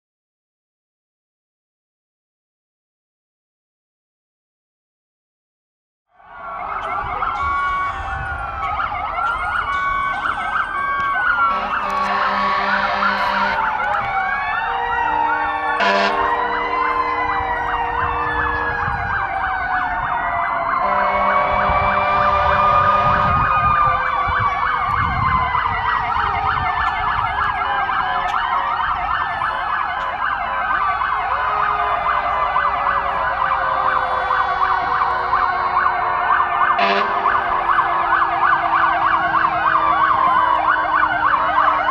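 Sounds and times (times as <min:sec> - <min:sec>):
emergency vehicle sirens wailing: 0:06.1 - 0:41.9
air horn blasts: 0:11.5 - 0:13.8, 0:14.7 - 0:19.1, 0:20.8 - 0:23.5, 0:33.7 - 0:40.9.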